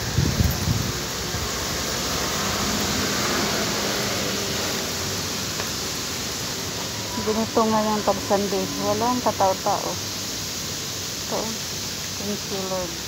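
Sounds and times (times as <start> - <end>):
steady rushing outdoor noise: 0.0 - 13.0.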